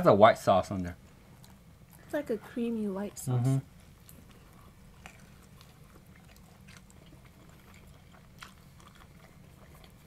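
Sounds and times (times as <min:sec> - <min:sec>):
low background hum: 0:00.0 - 0:10.0
people chewing: 0:01.2 - 0:02.2, 0:03.4 - 0:10.0.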